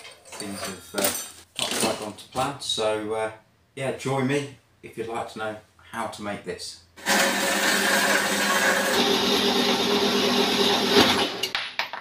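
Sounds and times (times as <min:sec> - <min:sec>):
power tool cutting metal tube: 0:07.0 - 0:11.5.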